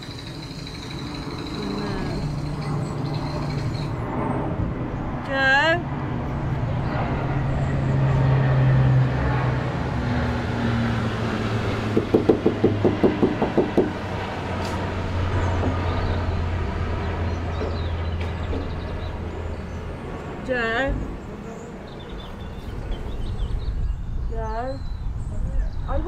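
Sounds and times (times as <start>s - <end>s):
rapid regular knocks: 0.0s - 4.0s, 11.8s - 14.3s
engine humming: 0.0s - 26.0s.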